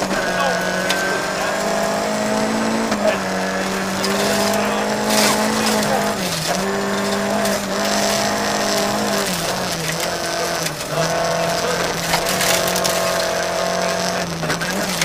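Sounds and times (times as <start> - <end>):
rally car engine running hard: 0.0 - 15.0
tyres on rough gravel: 0.0 - 15.0.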